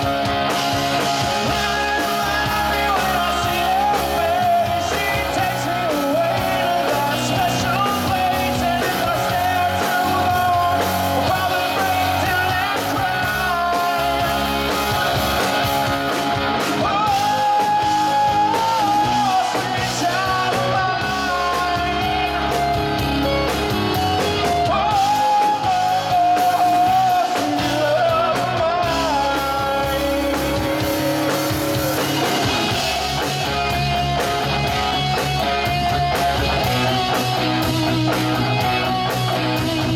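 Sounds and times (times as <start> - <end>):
bass guitar: 0.0 - 39.9
drum kit: 0.0 - 39.9
electric guitars: 0.0 - 39.9
man singing into a microphone: 1.0 - 15.7, 16.6 - 22.8, 24.4 - 32.9.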